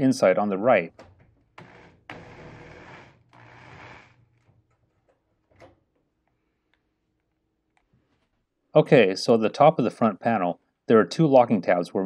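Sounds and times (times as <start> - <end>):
cordless drill running: 1.6 - 4.2.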